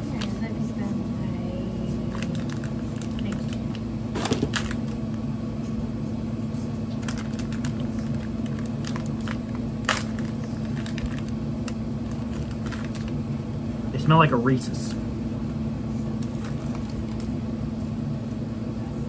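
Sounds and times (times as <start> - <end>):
steady low hum: 0.0 - 19.0
plastic wrapper crinkling: 2.1 - 3.8, 4.4 - 5.1, 7.0 - 13.2.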